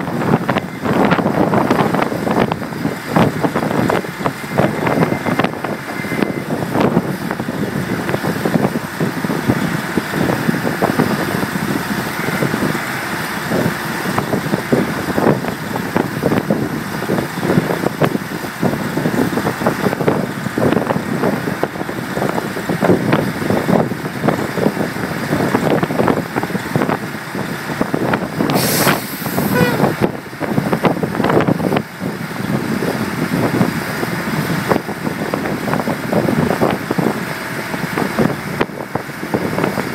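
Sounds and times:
rig engine running under load: 0.0s - 39.9s
short hiss: 28.5s - 29.9s.

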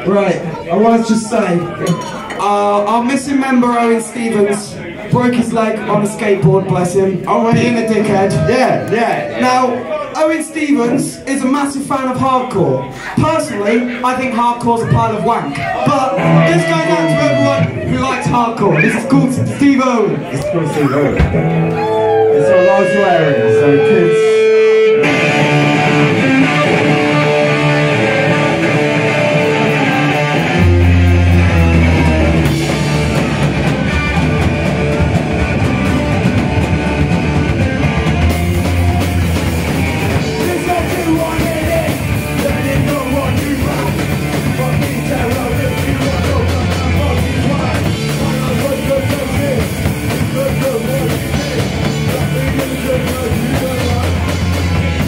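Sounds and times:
bass and drum kit: 5.1s - 8.6s, 14.8s - 19.6s, 21.0s - 22.2s, 24.6s - 55.0s
singer shouting: 14.7s - 19.6s, 20.3s - 28.7s, 39.7s - 54.3s
electric guitar: 21.0s - 55.0s.

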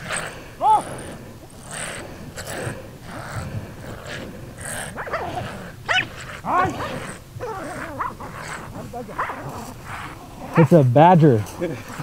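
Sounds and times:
dogs yelping and whining: 0.0s - 10.8s.

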